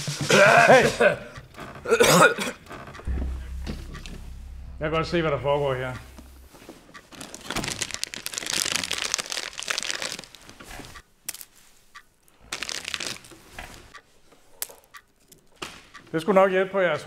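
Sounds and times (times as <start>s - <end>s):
plastic bag crinkling: 7.2s - 10.5s, 12.5s - 13.4s.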